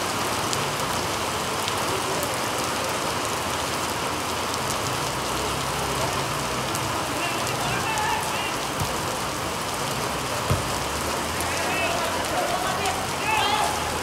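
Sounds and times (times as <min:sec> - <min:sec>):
heavy rain hiss: 0:00.0 - 0:14.0
sharp ticks of raindrops: 0:00.0 - 0:14.0.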